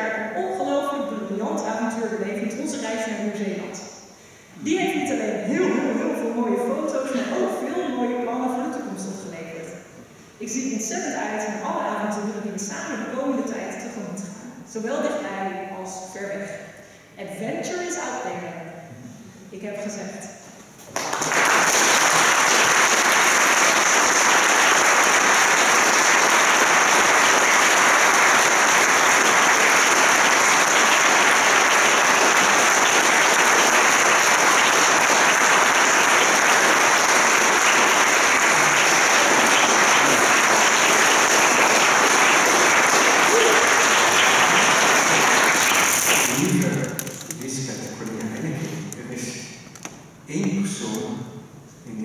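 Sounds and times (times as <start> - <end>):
audience applauding: 20.9 - 48.2.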